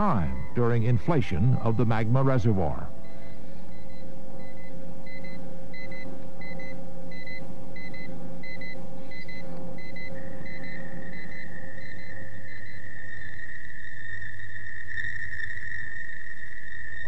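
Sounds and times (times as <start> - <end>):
high electronic beeps: 0.0 - 12.9
steady high tone: 0.0 - 16.6
low synth drone: 0.0 - 17.0.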